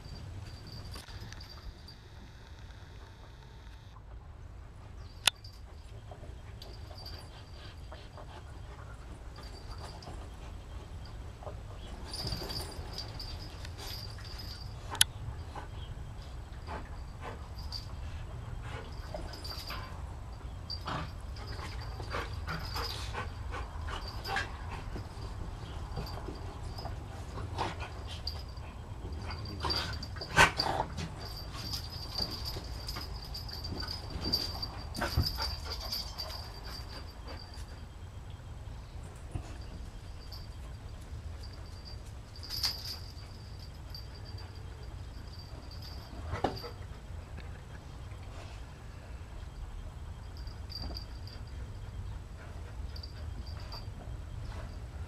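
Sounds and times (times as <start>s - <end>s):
dogs mouthing and scuffling: 5.5s - 37.9s.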